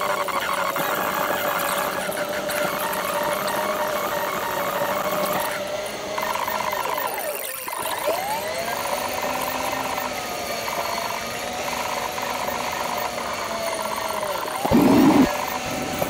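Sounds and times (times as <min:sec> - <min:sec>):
sped-up car engine whine: 0:11.8 - 0:16.0.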